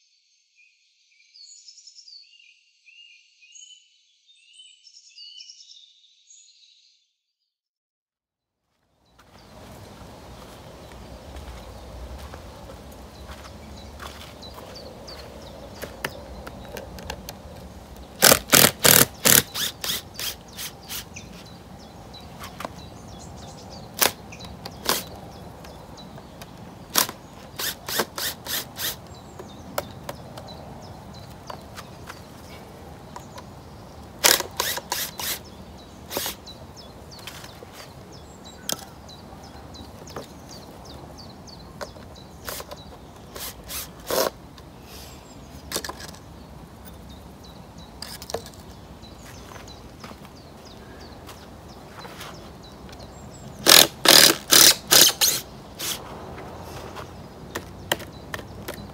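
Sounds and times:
drill-driver rapid clicks: 18.2s - 21.1s, 26.9s - 29.0s, 34.2s - 35.4s, 53.6s - 56.0s.

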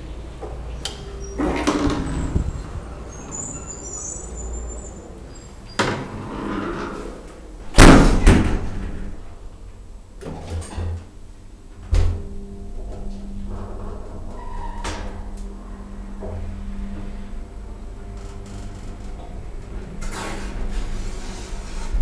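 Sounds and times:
elevator doors sliding: 0.0s - 9.4s, 11.7s - 22.0s
elevator door slamming: 0.8s - 6.2s, 7.7s - 9.4s, 11.8s - 17.3s.

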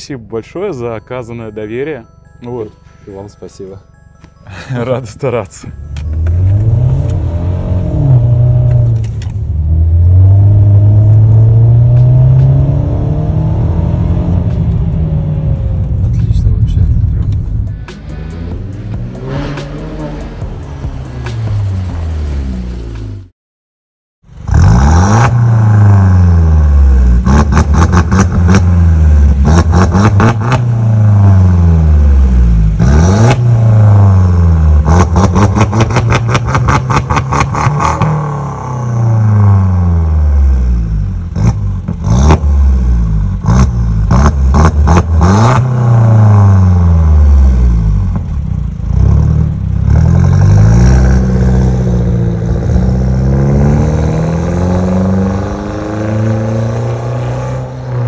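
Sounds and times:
car engine revving: 6.1s - 23.3s, 24.3s - 58.0s.

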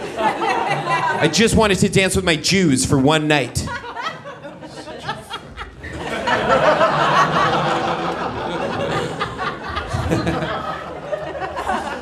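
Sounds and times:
audience laughing: 0.0s - 1.4s, 3.5s - 12.0s.

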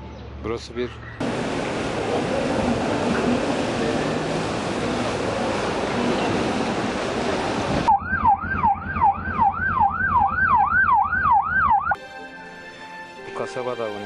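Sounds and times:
steady rushing noise: 1.2s - 9.4s
siren yelping: 7.9s - 12.0s
soft music: 12.0s - 14.0s.

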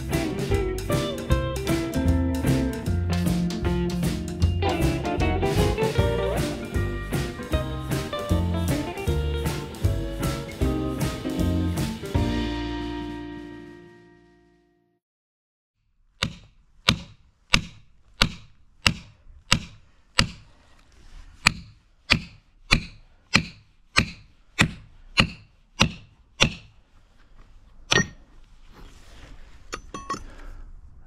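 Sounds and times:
sharp evenly spaced strikes: 0.1s - 12.2s.

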